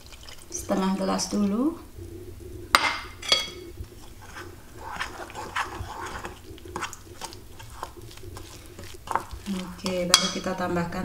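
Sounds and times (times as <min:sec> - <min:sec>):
metal spoon scraping a bowl: 0:02.8 - 0:10.6.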